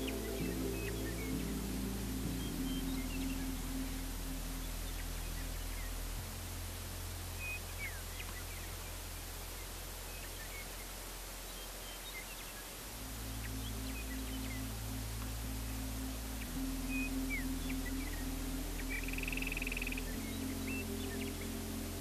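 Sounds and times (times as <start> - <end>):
held music drone: 0.0 - 7.3, 12.8 - 22.0
low steady hum: 0.0 - 22.0.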